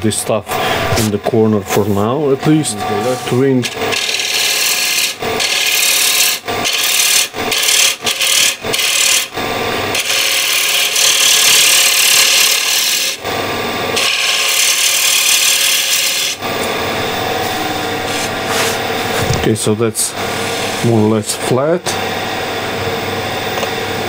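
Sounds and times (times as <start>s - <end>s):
lathe gouge shaving wood: 0.5s - 18.9s.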